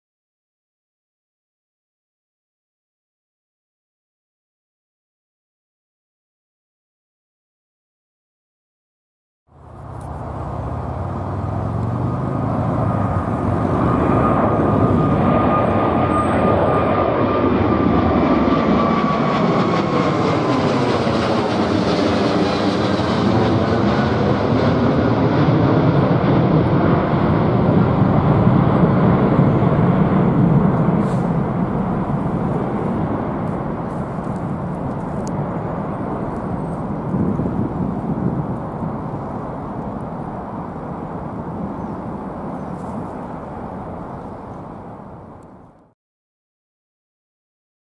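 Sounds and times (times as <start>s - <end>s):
jet engine roar overhead: 9.5s - 45.9s.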